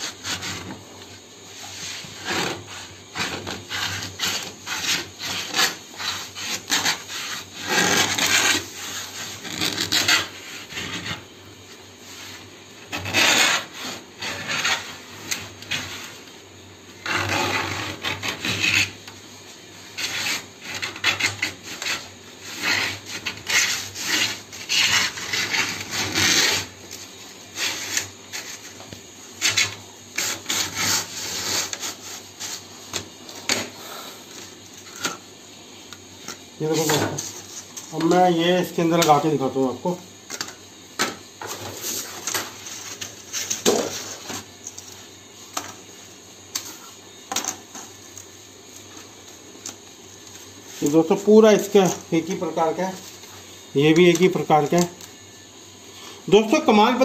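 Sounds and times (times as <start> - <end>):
needle scraping laminate sheet: 0.0 - 16.3, 17.0 - 35.2, 36.6 - 39.8.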